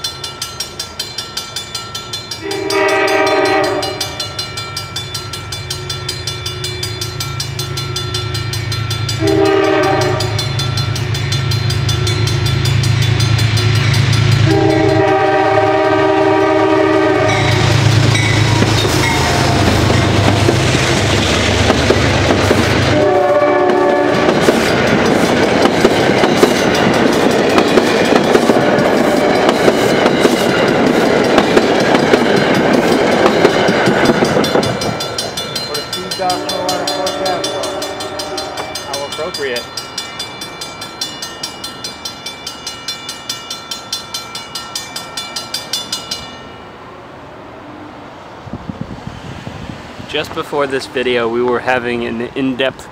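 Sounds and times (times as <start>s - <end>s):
crossing bells ringing: 0.0s - 47.0s
locomotive engine rumbling: 0.1s - 52.9s
train horn blasts: 2.4s - 4.6s, 9.1s - 20.3s, 22.8s - 24.5s, 35.8s - 39.1s
train wheels clattering over joints: 23.7s - 39.9s.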